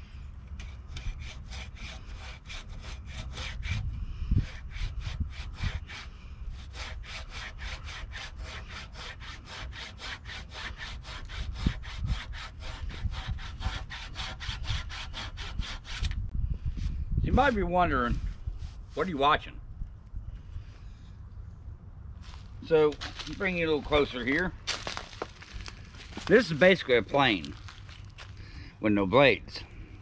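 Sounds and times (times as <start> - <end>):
rasp plane scraping wood: 0.6 - 3.8, 4.4 - 16.1.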